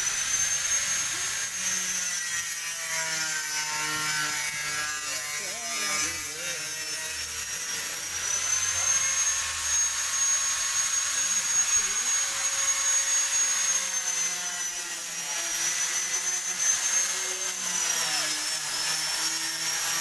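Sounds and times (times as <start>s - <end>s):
power tool whining: 0.0s - 20.0s.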